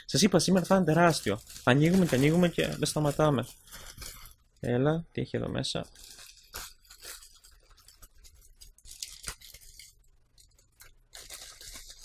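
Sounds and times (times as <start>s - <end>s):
plastic mailer crinkling: 0.2s - 4.4s, 5.9s - 12.0s.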